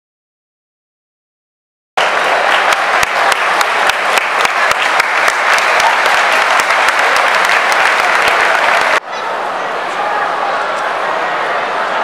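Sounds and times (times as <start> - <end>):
stadium crowd applauding: 2.0 - 9.0.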